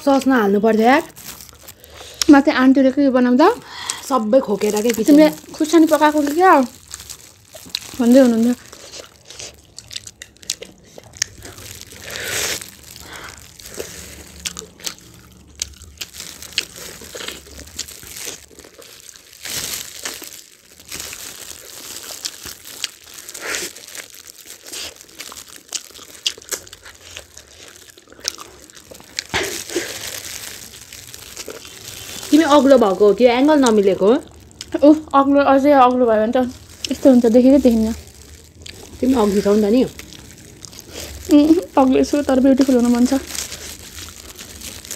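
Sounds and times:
plastic gloves crinkling: 0.0s - 44.9s
people chewing chicken wings: 4.8s - 32.6s, 37.7s - 44.9s.

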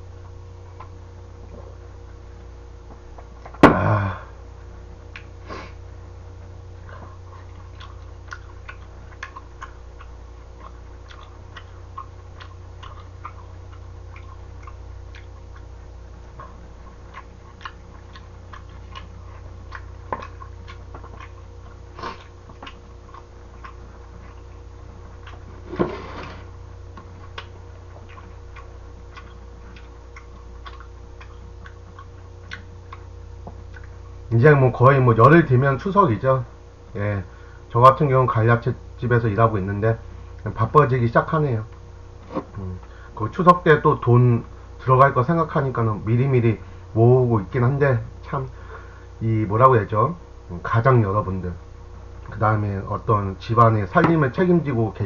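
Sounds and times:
low hum: 0.0s - 55.0s
chewing: 0.2s - 1.0s, 6.8s - 25.8s, 26.4s - 34.2s.

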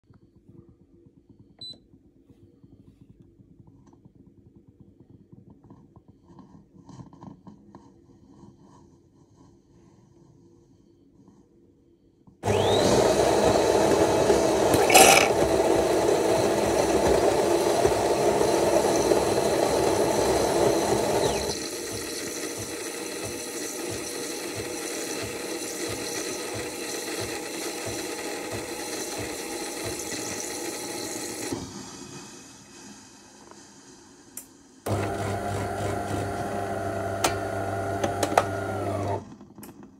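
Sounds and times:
espresso machine frothing milk: 12.4s - 34.0s, 34.9s - 39.4s.

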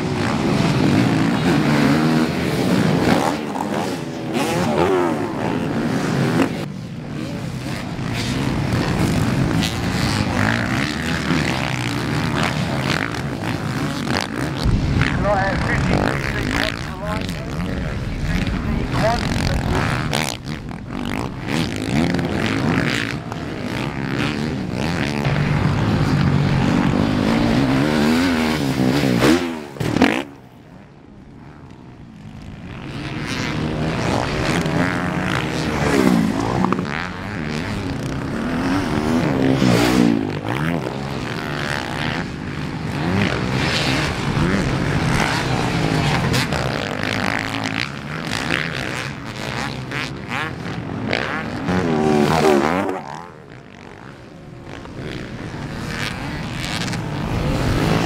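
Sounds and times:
motocross bikes revving: 0.0s - 58.0s.

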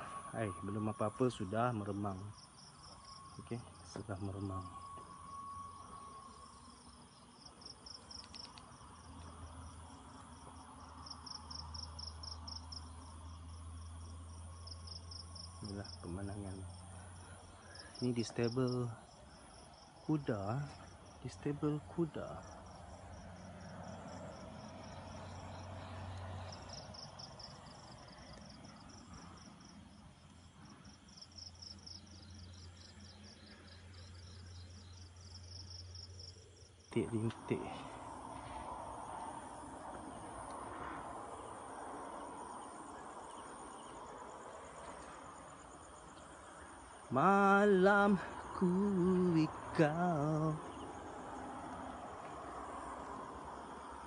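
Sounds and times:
low hum: 0.0s - 20.0s
crickets chirping: 0.0s - 54.0s
faint clicks: 8.1s - 9.3s.

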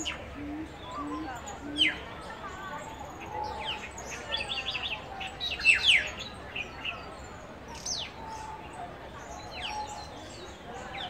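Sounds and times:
birds chirping: 0.0s - 8.4s.

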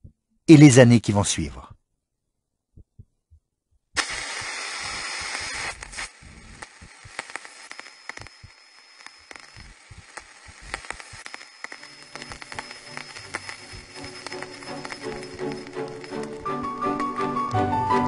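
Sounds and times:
hissing crackling noise: 4.0s - 17.6s
scattered clicks: 4.0s - 17.6s.

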